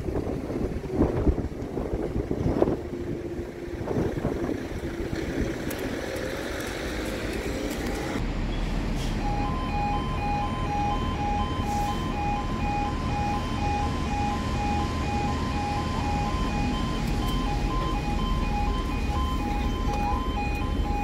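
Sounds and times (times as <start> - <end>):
wind noise: 0.0 - 6.5
road noise: 0.0 - 21.0
level crossing alarm two-tone: 9.2 - 21.0.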